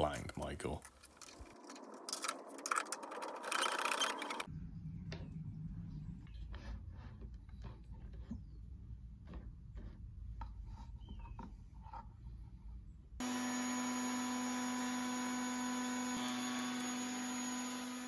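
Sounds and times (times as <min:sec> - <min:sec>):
router whining: 0:13.2 - 0:18.0.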